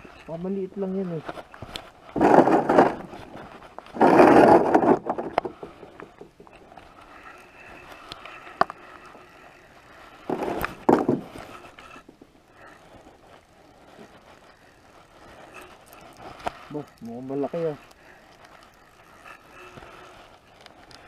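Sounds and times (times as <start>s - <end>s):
rustling and scraping: 0.0s - 21.0s
light clicks of spinning reel: 5.2s - 21.0s.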